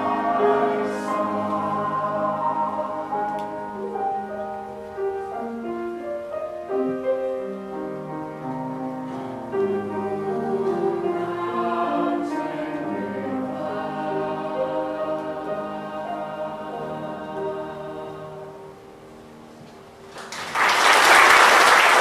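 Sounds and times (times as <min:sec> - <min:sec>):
mixed choir singing chords: 0:00.0 - 0:04.7, 0:09.1 - 0:19.1
piano accompaniment: 0:00.0 - 0:20.2.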